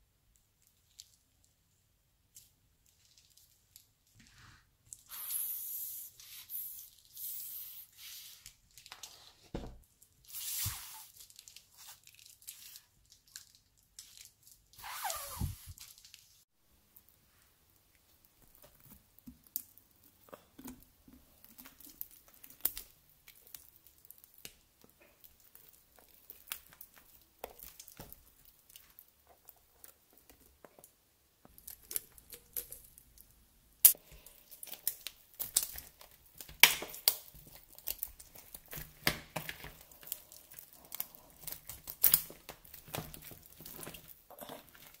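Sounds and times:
slime crackling and tearing: 10.4 - 16.3, 21.4 - 30.3, 33.9 - 45.0.

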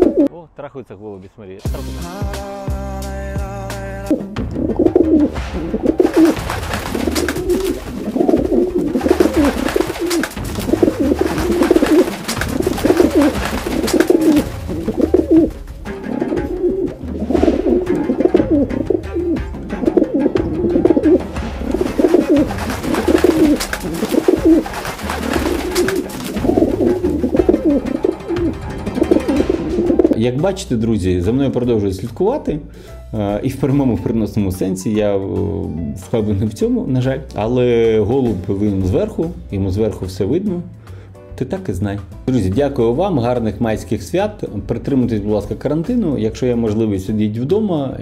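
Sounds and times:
pigeon cooing: 0.0 - 0.3, 4.2 - 30.2.

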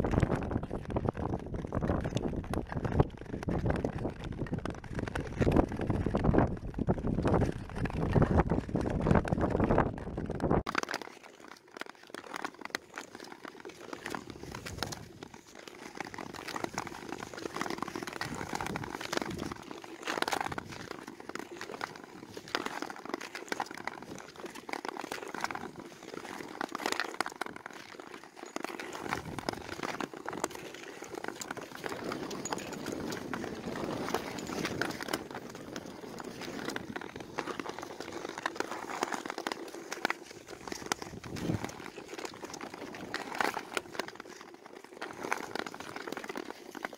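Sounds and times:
skates clacking on ice: 0.0 - 46.9
ice skate blades scraping: 10.8 - 46.9.

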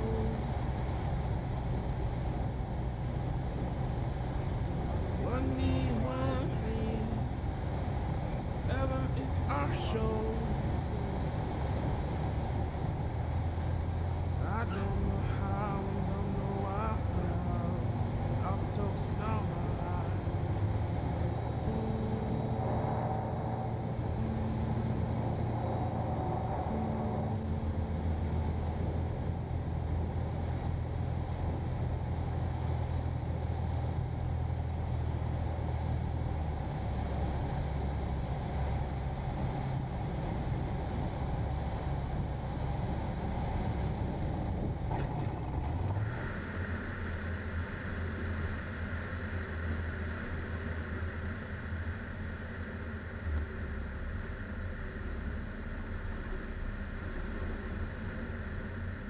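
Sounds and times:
light aircraft engine drone: 0.0 - 59.0.

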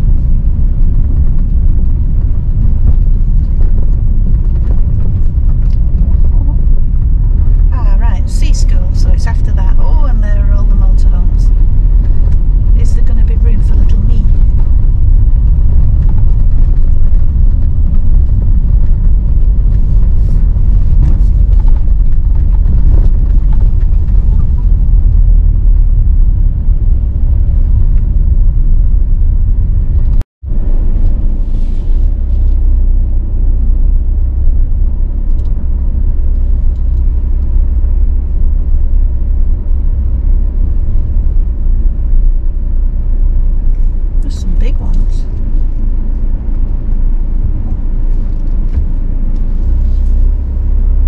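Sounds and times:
van engine and road noise: 0.0 - 51.0.

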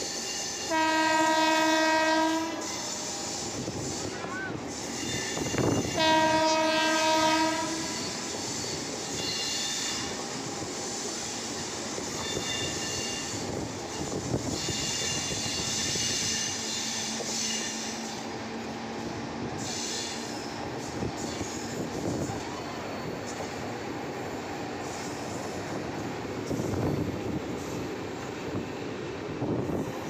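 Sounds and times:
train wheels squealing: 0.0 - 0.8, 2.5 - 6.1, 7.7 - 30.0
train horn: 0.6 - 4.5, 5.3 - 8.3.

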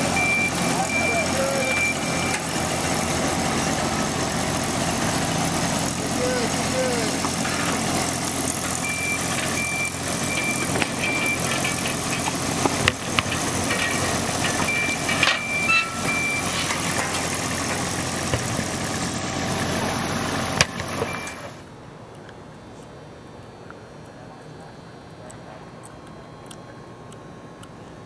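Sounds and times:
machine engine running: 0.0 - 21.8
tractor engine: 0.0 - 22.0
short high beeps: 0.2 - 2.4, 8.8 - 11.5, 14.6 - 16.6
sharp metal clanks: 10.3 - 18.6.

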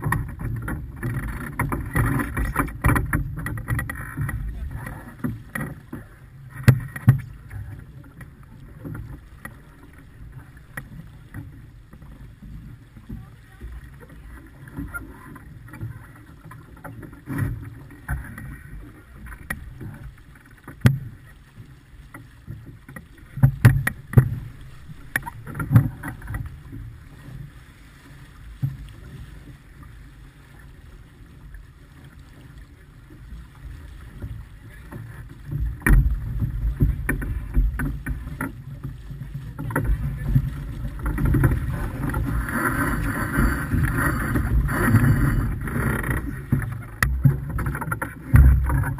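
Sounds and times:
sharp knocks from boat: 0.0 - 10.0, 14.6 - 21.3, 22.1 - 27.4, 34.2 - 48.9
water rushing along hull: 0.0 - 48.9
wind on microphone: 34.3 - 48.9.

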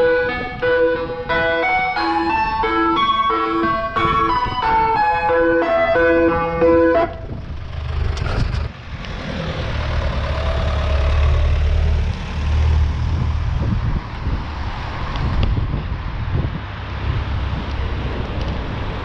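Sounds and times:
ice cream van chimes: 0.0 - 7.3
wind buffeting microphone: 0.0 - 19.0
van engine running: 6.5 - 14.0.

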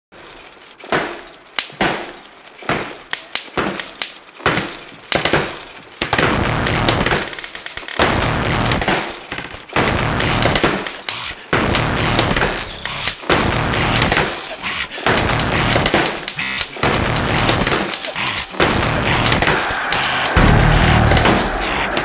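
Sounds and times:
continuous loud din: 9.9 - 22.0
sharp bangs: 15.1 - 22.0.

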